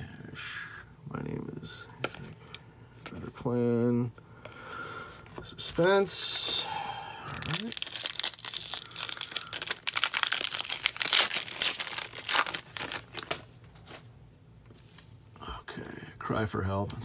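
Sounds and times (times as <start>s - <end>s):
foil wrapper tearing and crinkling: 7.3s - 13.5s.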